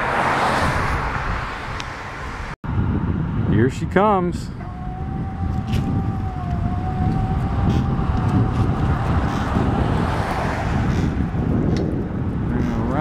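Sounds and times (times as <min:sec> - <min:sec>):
low rumble: 0:04.5 - 0:13.0
crane motor whine: 0:04.6 - 0:08.7
rushing noise: 0:04.6 - 0:12.2.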